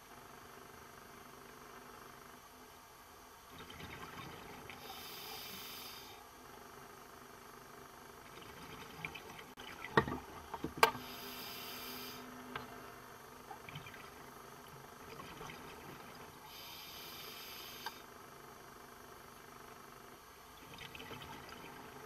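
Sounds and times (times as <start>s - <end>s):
faint low hum: 0.0s - 22.0s
diver breathing through regulator: 4.8s - 6.2s, 11.0s - 12.3s, 16.5s - 18.0s.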